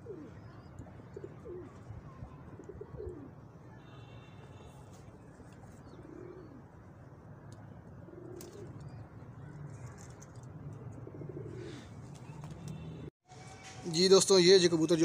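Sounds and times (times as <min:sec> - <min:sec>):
pigeons cooing: 0:00.0 - 0:03.5, 0:05.8 - 0:06.8, 0:08.0 - 0:09.0, 0:10.8 - 0:12.4.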